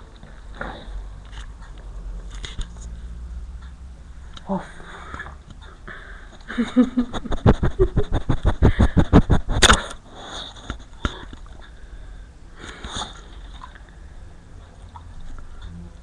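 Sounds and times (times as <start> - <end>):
dog sniffing: 7.1 - 10.7.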